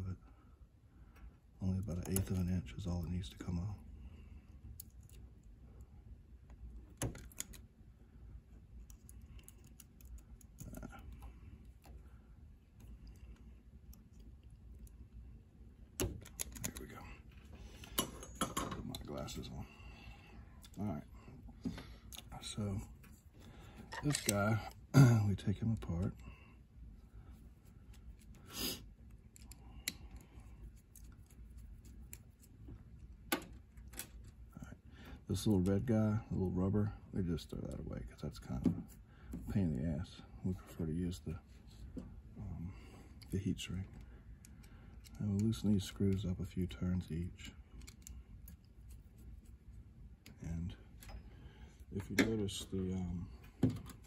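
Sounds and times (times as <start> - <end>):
small clicks and scrapes of plastic plug: 47.7 - 49.3.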